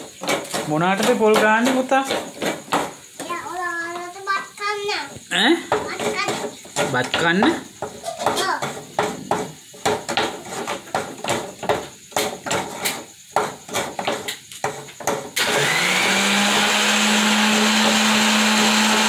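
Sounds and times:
coconut knocking and scraping on plate: 0.0 - 3.3, 5.6 - 15.4
electric blender running: 15.4 - 19.0.

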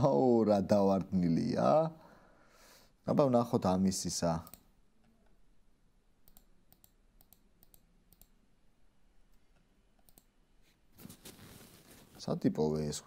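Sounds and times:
computer mouse clicks: 4.4 - 4.7, 6.2 - 8.4, 9.3 - 10.3
rustling noise: 10.6 - 12.5.

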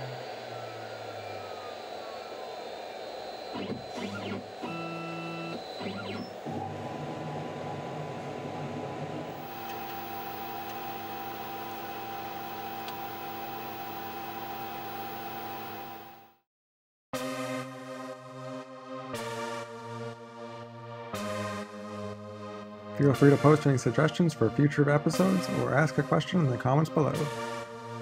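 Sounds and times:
stepped motor whines: 0.0 - 7.8, 9.2 - 16.4
steady whine: 0.0 - 7.9, 9.2 - 16.4
machine hum: 0.0 - 16.4.

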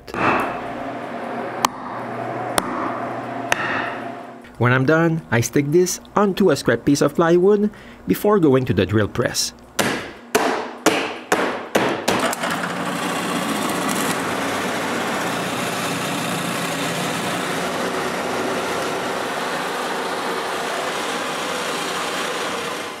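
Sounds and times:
sharp knocks: 3.5 - 4.0, 9.8 - 12.4
drill press boring into wood: 12.1 - 23.0.

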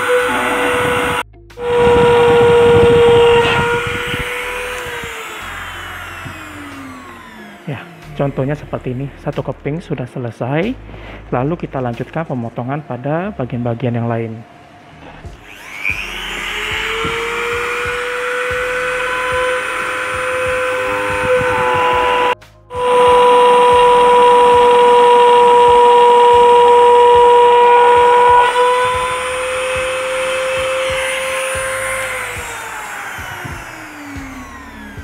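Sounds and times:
rotary tool cutting plastic pipe: 0.0 - 8.2, 15.4 - 35.0.

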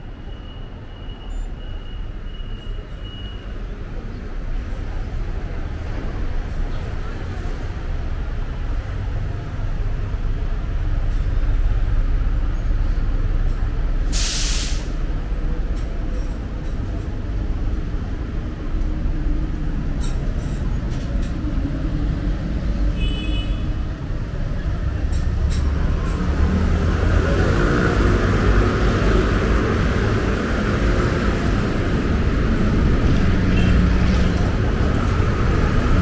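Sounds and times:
traffic engines rumbling: 0.0 - 36.0
bus air brakes hissing: 14.0 - 15.2.

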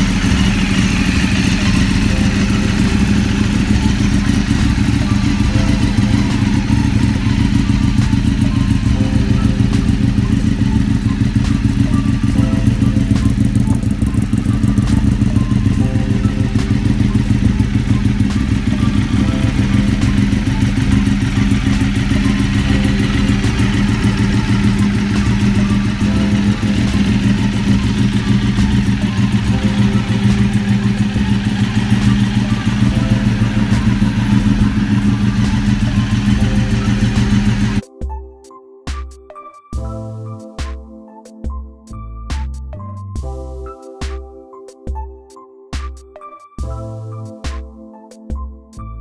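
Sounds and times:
motorcycle engine idling: 0.0 - 37.8.

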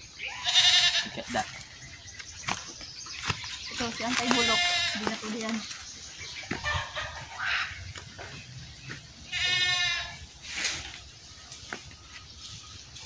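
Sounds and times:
animal bleating: 0.2 - 1.5, 4.2 - 5.5, 9.3 - 10.3
brief hissing rustle: 10.4 - 11.0.

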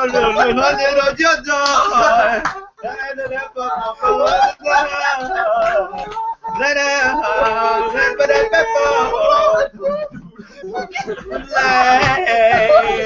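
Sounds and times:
a cappella singing: 0.0 - 13.0.

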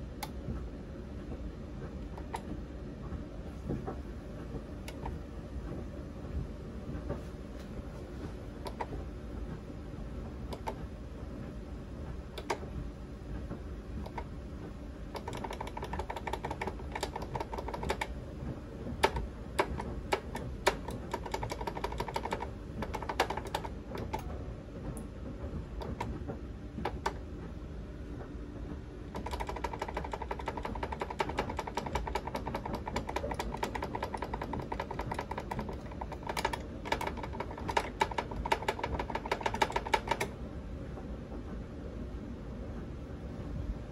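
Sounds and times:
relays and buttons clicking: 1.8 - 2.6, 3.7 - 5.8, 8.6 - 9.0, 10.5 - 10.9, 12.2 - 12.8, 13.4 - 14.4, 15.1 - 18.2, 18.8 - 25.1, 25.7 - 27.3, 29.1 - 40.4.

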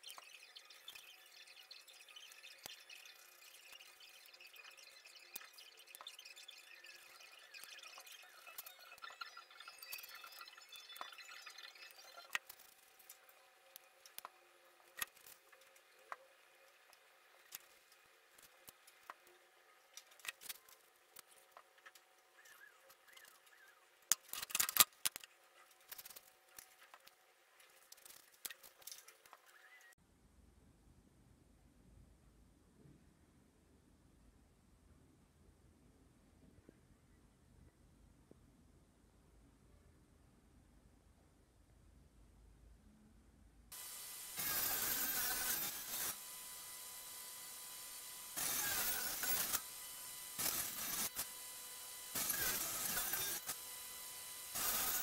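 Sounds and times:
table saw motor whine: 0.0 - 12.7, 43.7 - 55.0
saw ripping through wood: 43.8 - 55.0.

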